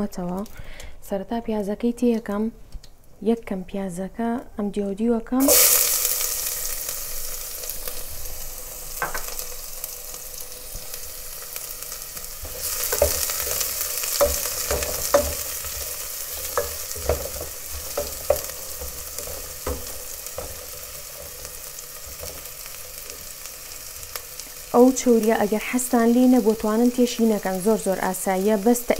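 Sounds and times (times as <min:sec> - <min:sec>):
onion sizzling in hot oil: 0:05.4 - 0:28.9
wooden spoon knocking pot: 0:12.5 - 0:20.6.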